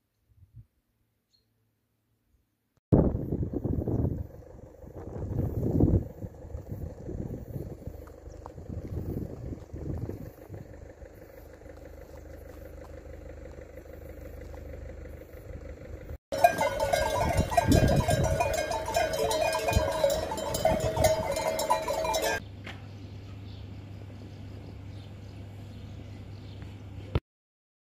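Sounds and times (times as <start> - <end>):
sheep bells clanking: 16.3 - 22.4.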